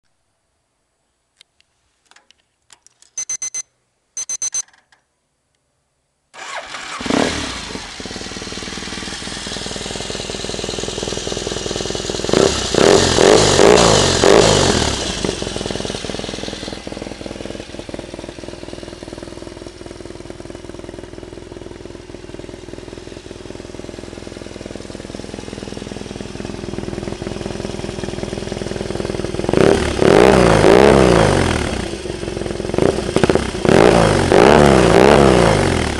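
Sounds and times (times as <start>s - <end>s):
short high beeps: 3.1s - 4.7s
motorcycle engine idling and revving: 6.4s - 35.9s.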